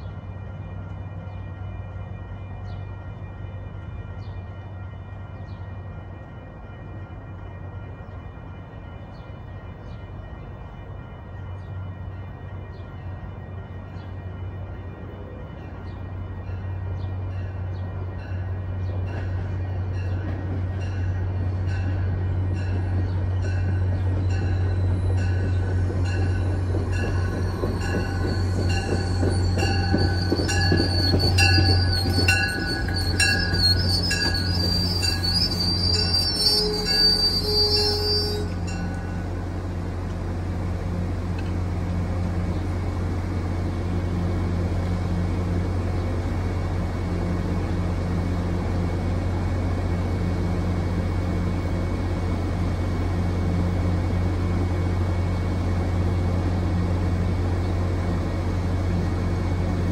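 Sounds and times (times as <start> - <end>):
train low hum: 0.0 - 59.9
train brakes squealing: 24.3 - 39.2.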